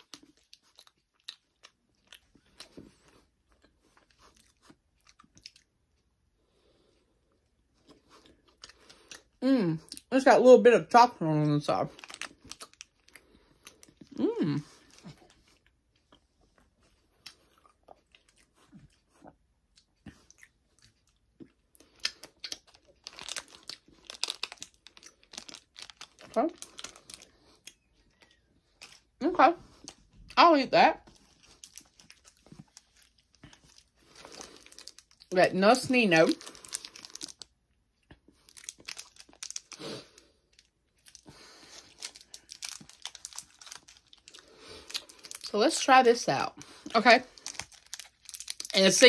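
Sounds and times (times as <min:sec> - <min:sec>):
person chewing: 0:00.0 - 0:10.1, 0:11.9 - 0:30.4, 0:31.0 - 0:35.3, 0:36.4 - 0:45.6, 0:46.6 - 0:48.8
plastic wrapper crinkling: 0:11.8 - 0:15.6, 0:21.8 - 0:29.1, 0:31.0 - 0:37.7, 0:38.4 - 0:49.0.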